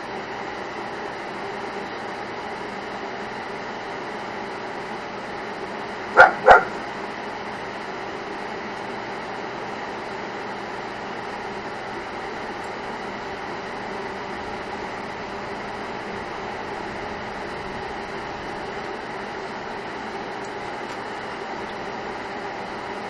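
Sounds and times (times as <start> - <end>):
steady background hum: 0.0 - 23.0
dog barking: 6.2 - 6.9.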